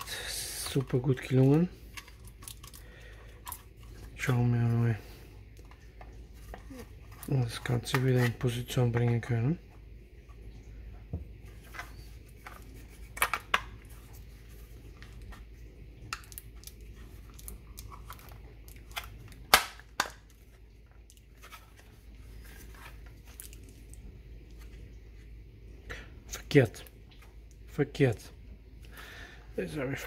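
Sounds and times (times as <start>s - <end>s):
plastic parts clicking and knocking: 11.7s - 13.8s.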